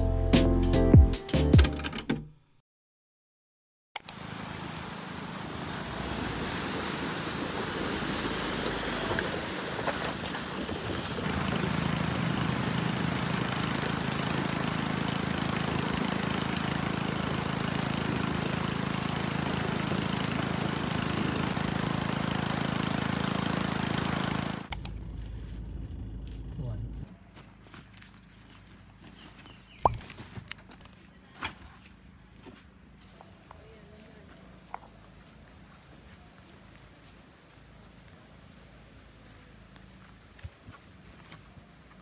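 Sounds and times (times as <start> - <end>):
river water rushing and splashing: 4.2 - 11.3
pickup truck engine running: 7.4 - 27.1.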